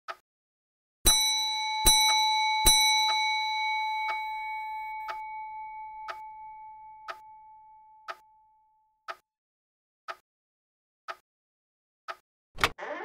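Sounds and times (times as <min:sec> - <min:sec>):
bell chime ringing: 0:01.1 - 0:08.1.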